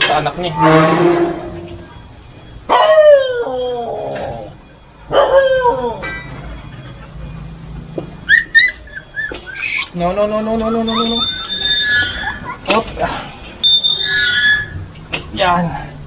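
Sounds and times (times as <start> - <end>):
puppies squeaking: 5.5 - 14.9
dog whining: 8.2 - 12.8, 13.6 - 14.8.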